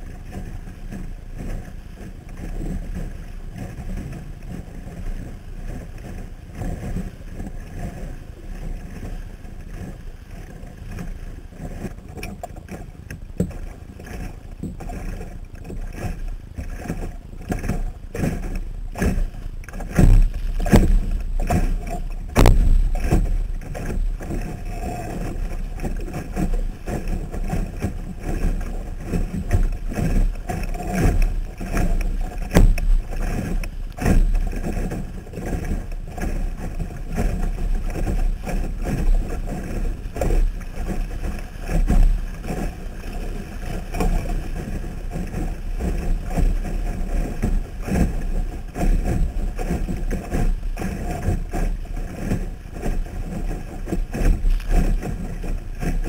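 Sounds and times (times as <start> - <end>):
water slapping against hull: 0.0 - 56.0
low rumble: 18.6 - 44.0.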